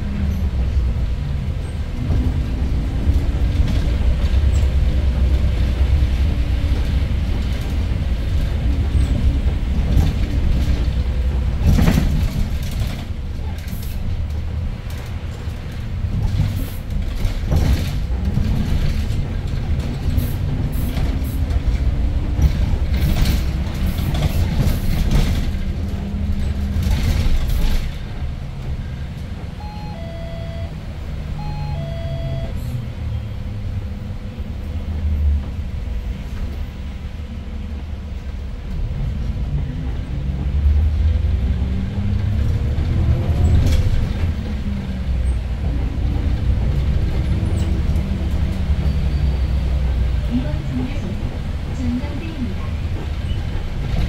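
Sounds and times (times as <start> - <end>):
bus engine rumbling: 0.0 - 54.0
two-note electronic beeps: 29.6 - 30.8, 31.4 - 32.6.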